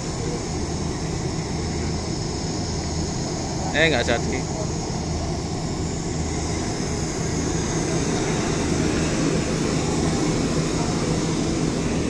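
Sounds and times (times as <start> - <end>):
low engine rumble: 0.0 - 12.0
street noise: 0.0 - 12.0.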